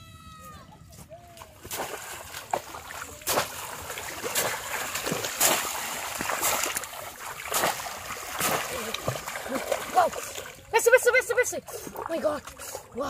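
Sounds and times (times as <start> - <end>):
fish trap splashing into water: 1.6 - 10.6.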